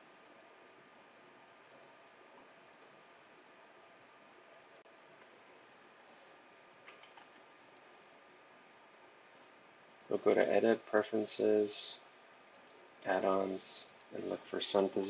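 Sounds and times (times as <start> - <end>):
computer mouse clicks: 0.0 - 0.4, 1.7 - 2.0, 2.7 - 3.0, 4.6 - 4.9, 6.0 - 6.2, 6.9 - 7.9, 12.5 - 12.8
steady low hiss: 0.0 - 15.0.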